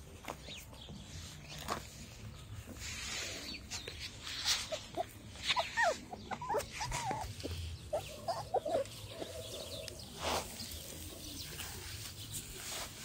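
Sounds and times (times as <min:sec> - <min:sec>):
puppies whimpering and squeaking: 0:03.0 - 0:09.9.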